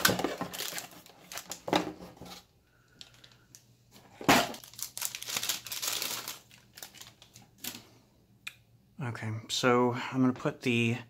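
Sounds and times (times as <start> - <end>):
packaging rustling: 0.0 - 7.9.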